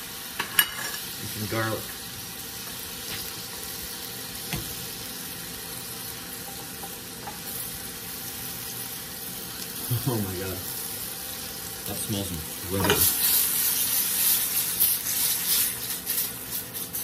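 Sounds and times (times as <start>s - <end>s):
butter and oil sizzling: 0.0s - 17.0s.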